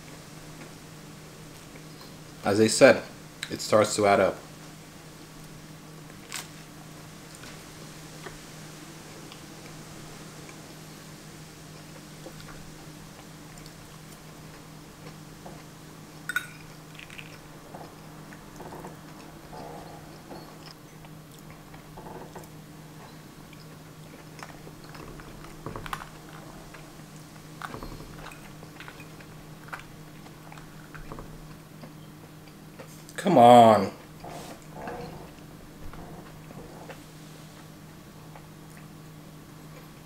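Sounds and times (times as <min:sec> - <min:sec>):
faint steady hum: 0:00.0 - 0:40.0
chewing and mouth sounds: 0:11.7 - 0:19.4, 0:20.4 - 0:33.2.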